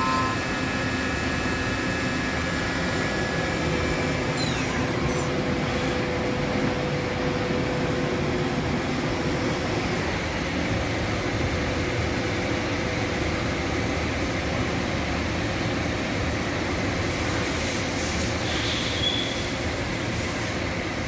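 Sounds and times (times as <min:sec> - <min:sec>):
machine humming: 0:00.0 - 0:14.4
hiss: 0:17.0 - 0:20.6.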